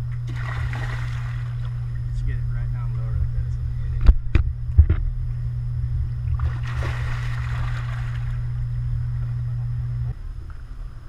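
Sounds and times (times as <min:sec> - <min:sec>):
steady low rumble: 0:00.0 - 0:11.0
fish splashing water: 0:00.2 - 0:02.0, 0:06.3 - 0:08.6.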